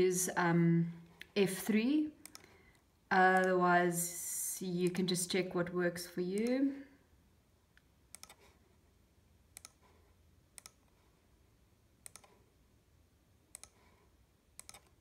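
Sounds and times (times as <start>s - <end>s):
computer mouse clicks: 2.2s - 3.6s, 6.4s - 6.6s, 7.7s - 8.6s, 9.5s - 11.0s, 12.0s - 12.5s, 13.5s - 15.0s.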